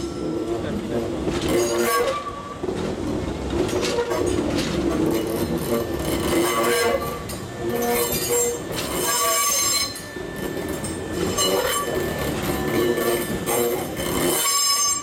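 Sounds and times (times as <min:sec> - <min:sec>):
train low rumble: 0:00.0 - 0:15.0
train wheels squealing: 0:05.0 - 0:15.0.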